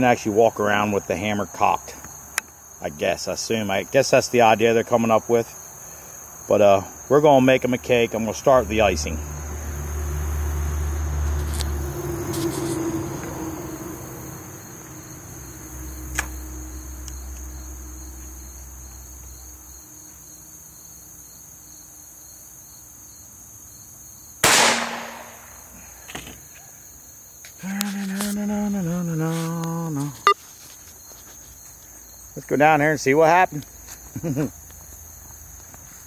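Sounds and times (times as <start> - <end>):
crickets chirping: 0.0 - 36.0
rifle shot: 24.4 - 25.6
drawn-out vocal sound: 27.6 - 30.4.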